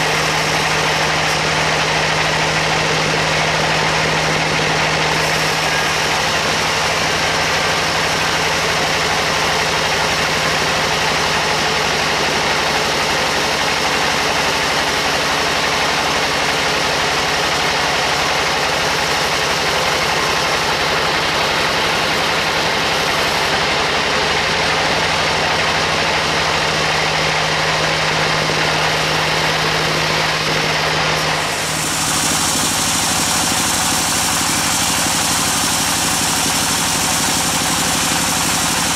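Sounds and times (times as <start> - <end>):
band saw cutting timber: 0.0 - 38.9
machine hum: 0.0 - 38.9.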